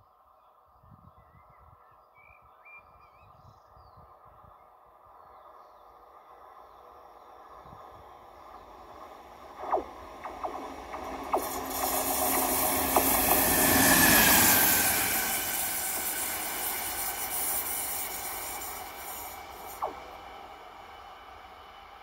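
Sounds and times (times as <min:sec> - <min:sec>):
locomotive whine dropping in pitch: 0:07.1 - 0:22.0
locomotive wheel and running noise: 0:07.6 - 0:22.0
rail clicks: 0:07.8 - 0:21.9.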